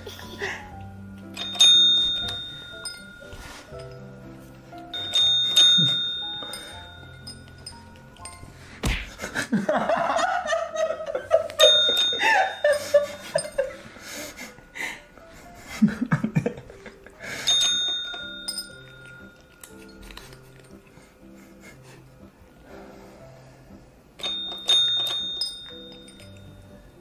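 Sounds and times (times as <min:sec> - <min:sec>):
person laughing: 0:00.0 - 0:00.8, 0:15.6 - 0:17.2
background music: 0:00.0 - 0:27.0
tap call bell dinging: 0:01.3 - 0:04.1, 0:04.9 - 0:08.3, 0:11.6 - 0:13.6, 0:24.2 - 0:26.8.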